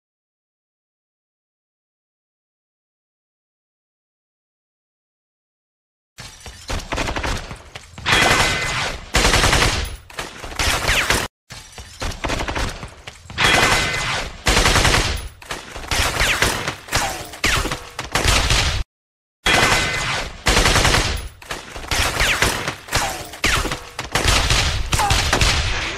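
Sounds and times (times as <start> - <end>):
automatic and rifle gunfire: 13.6 - 18.8, 19.5 - 25.9.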